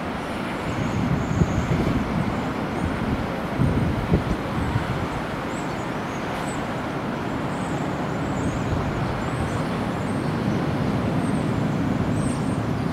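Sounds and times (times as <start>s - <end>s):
wind buffeting microphone: 0.0s - 6.6s, 8.1s - 12.9s
distant jet engine rumble: 0.0s - 12.9s.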